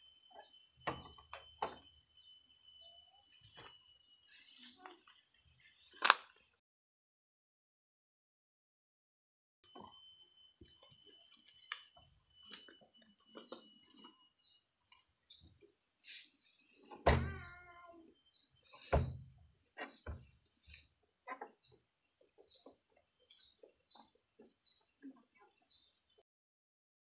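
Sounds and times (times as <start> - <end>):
rustling and snapping plants: 6.0 - 6.5
loud thuds: 17.0 - 17.6, 18.9 - 19.4.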